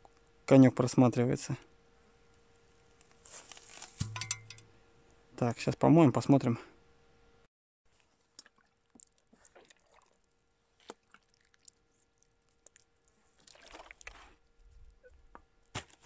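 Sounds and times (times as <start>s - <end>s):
wet handling of coin: 3.3s - 4.7s
water dripping: 4.0s - 4.7s.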